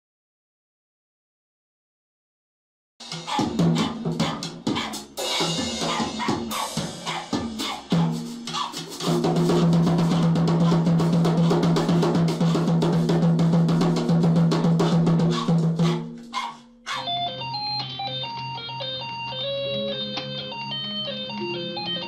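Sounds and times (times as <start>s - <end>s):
drum kit played fast: 3.0s - 17.1s.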